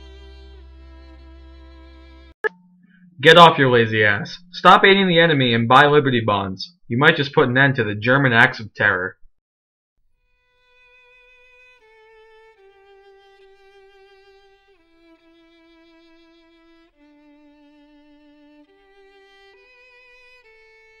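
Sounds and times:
slow solo violin melody: 0.0s - 2.4s, 10.2s - 21.0s.

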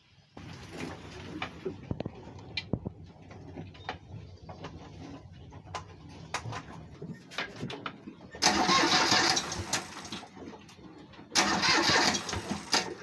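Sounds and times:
boat engine starter cranking: 8.4s - 10.3s, 11.4s - 13.0s.

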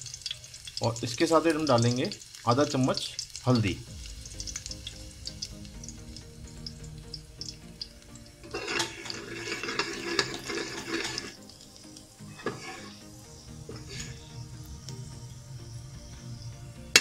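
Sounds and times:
spices sizzling in oil: 0.0s - 17.0s
ladle scraping metal pot: 8.2s - 11.6s, 12.2s - 14.4s
ladle clinking against pot: 8.5s - 11.3s.

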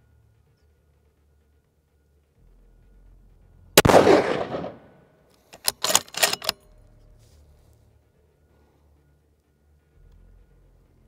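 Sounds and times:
rifle bolt clicking: 3.8s - 4.8s, 5.5s - 6.6s
rifle shot: 3.8s - 5.0s, 5.6s - 6.5s.

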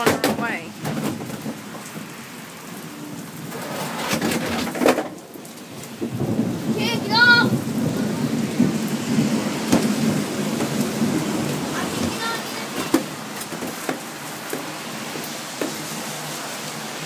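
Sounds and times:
steady rain: 0.0s - 17.0s
thunder rumbling: 2.8s - 14.8s.

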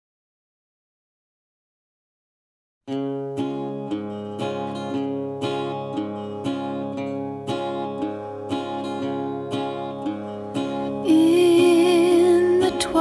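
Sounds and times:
strummed acoustic guitar music: 2.9s - 13.0s.

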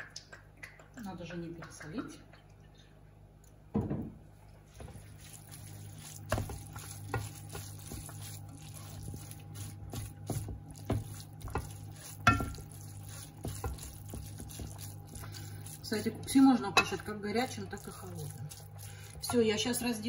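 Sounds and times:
cabbage sizzling: 4.7s - 20.0s
spatula scraping a pot: 4.9s - 19.8s
spatula knocking against pot: 10.2s - 15.2s.

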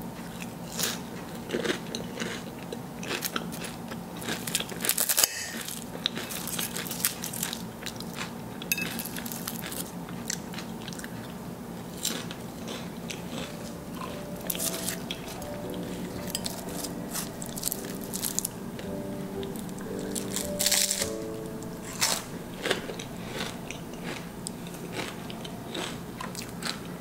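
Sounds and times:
puff pastry crunching under fork: 20.0s - 21.2s, 21.8s - 26.8s.

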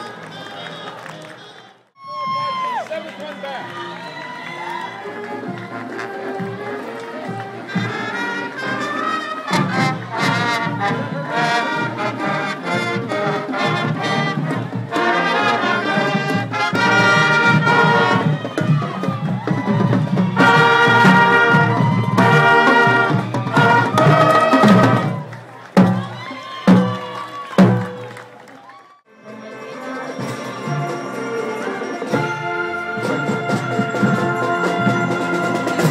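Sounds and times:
marching band playing: 2.0s - 35.9s
brass playing tune: 3.6s - 19.1s, 20.1s - 26.2s, 29.1s - 35.9s
snare and bass drums: 16.2s - 28.1s.

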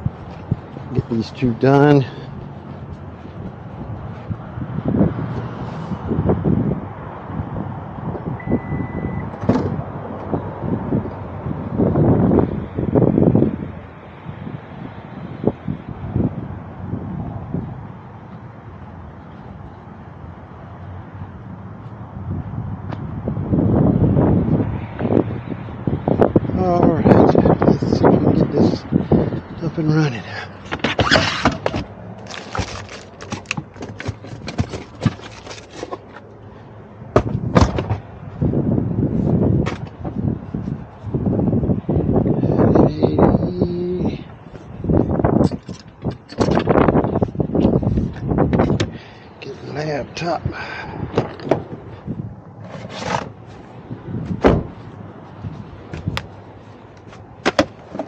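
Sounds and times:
knocks and clicks of handling: 30.6s - 36.3s
loud thump: 37.1s - 38.0s, 54.4s - 54.8s.

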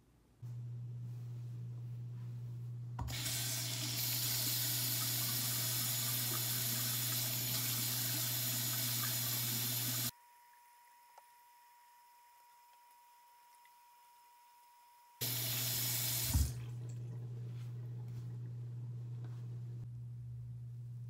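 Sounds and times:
steady low hum: 0.2s - 3.1s, 16.3s - 21.0s
tap water running into a sink: 3.0s - 10.1s, 15.2s - 17.2s.

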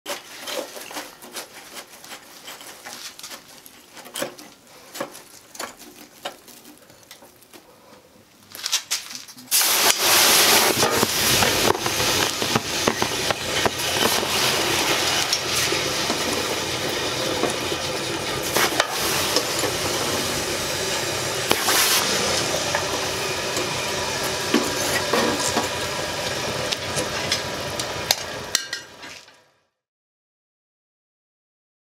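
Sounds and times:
fire crackling: 0.8s - 29.3s
sparks popping: 8.5s - 29.1s
forge air rushing hiss: 9.5s - 28.6s.

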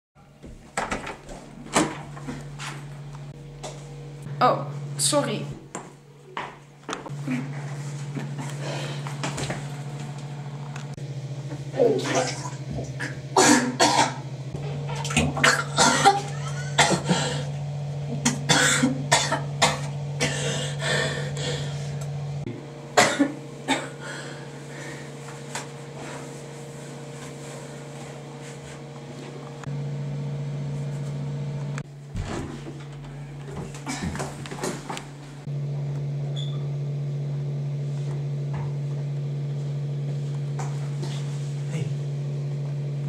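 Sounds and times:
low hum: 1.6s - 43.0s
person retching and coughing: 12.9s - 14.2s, 15.1s - 20.8s, 23.0s - 24.0s, 33.7s - 34.4s.

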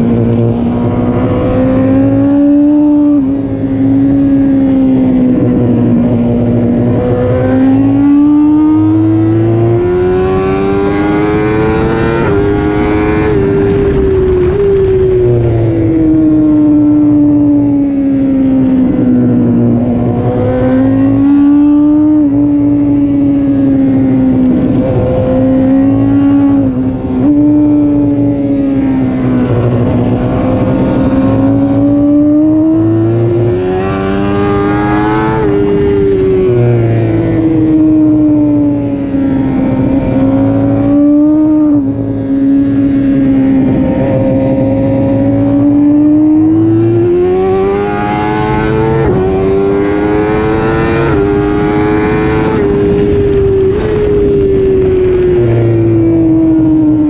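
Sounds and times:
motorcycle engine at high revs: 0.0s - 57.0s.

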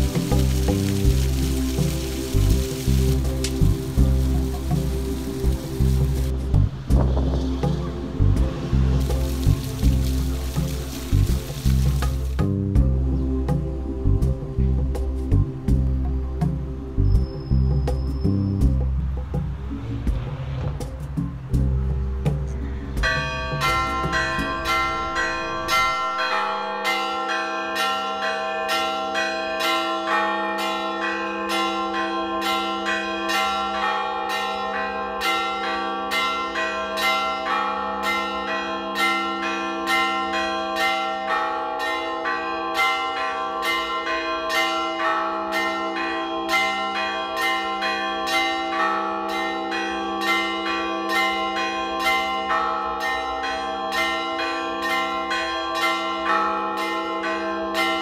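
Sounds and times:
church bells pealing: 0.0s - 6.4s, 7.8s - 12.4s, 23.0s - 58.0s.

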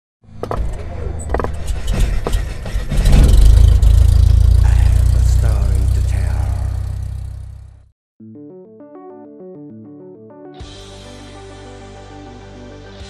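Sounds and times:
deep steady rumble: 1.2s - 7.9s.

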